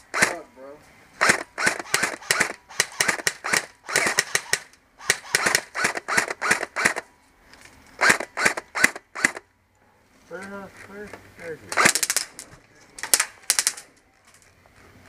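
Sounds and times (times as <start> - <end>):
airsoft guns firing: 0.1 - 0.4, 1.2 - 7.1, 8.0 - 9.5, 11.7 - 12.4, 13.0 - 13.9.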